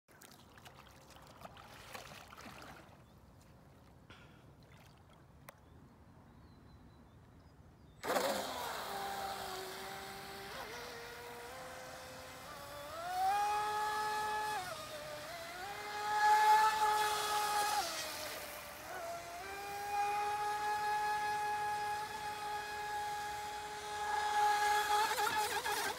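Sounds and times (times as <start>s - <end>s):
speedboat motor whine: 8.0s - 25.9s.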